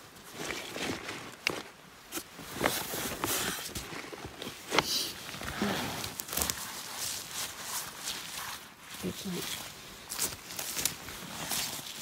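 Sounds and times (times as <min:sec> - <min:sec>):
footsteps through vegetation: 0:00.0 - 0:12.0
twigs snapping: 0:06.1 - 0:06.7.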